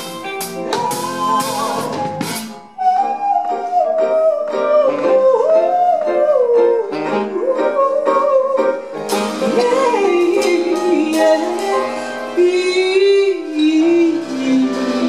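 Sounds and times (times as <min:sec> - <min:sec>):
live band playing: 0:00.0 - 0:04.6, 0:08.9 - 0:15.0
drum or cymbal hits: 0:09.1 - 0:12.0.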